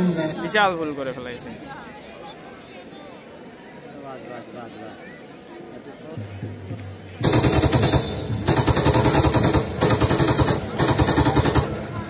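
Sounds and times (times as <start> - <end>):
machine-gun fire bursts: 7.2 - 11.9.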